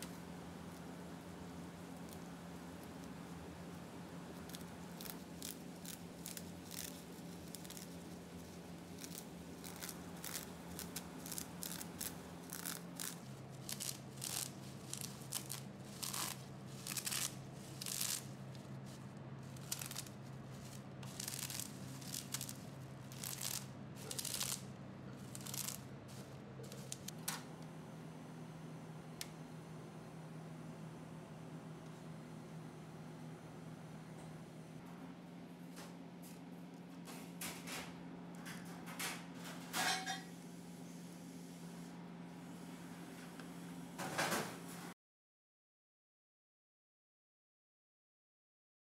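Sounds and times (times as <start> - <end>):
bubble wrap crinkling: 4.4 - 27.1.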